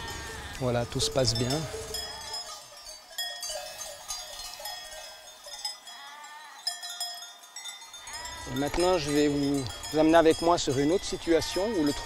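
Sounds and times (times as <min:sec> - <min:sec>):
sheep bleating: 0:00.0 - 0:02.6, 0:05.8 - 0:06.7, 0:08.0 - 0:09.8
sheep bells ringing: 0:00.0 - 0:12.0.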